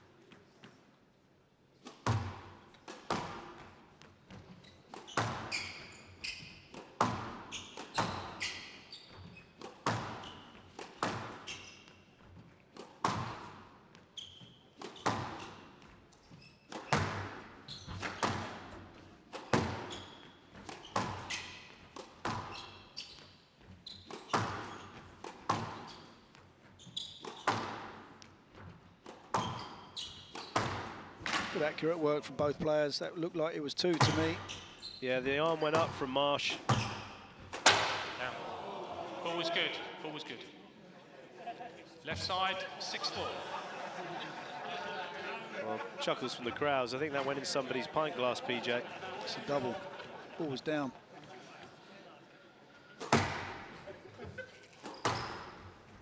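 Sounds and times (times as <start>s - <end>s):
ball hitting walls: 1.8s - 3.7s, 6.7s - 8.4s, 9.6s - 11.6s, 12.8s - 13.5s, 14.8s - 15.6s, 16.7s - 18.7s, 19.3s - 20.0s, 24.1s - 25.9s, 27.2s - 28.0s, 30.3s - 31.6s, 33.9s - 34.5s, 36.6s - 38.2s, 53.0s - 53.7s
shoes squeaking on court: 1.8s - 31.6s, 33.8s - 37.8s, 52.8s - 56.0s
squash ball hit by rackets: 1.9s - 3.7s, 6.7s - 8.3s, 9.6s - 11.4s, 12.8s - 13.6s, 14.8s - 15.6s, 16.7s - 19.9s, 20.6s - 22.6s, 24.1s - 25.9s, 27.2s - 28.0s, 30.4s - 31.5s, 36.6s - 38.2s, 53.0s - 53.8s.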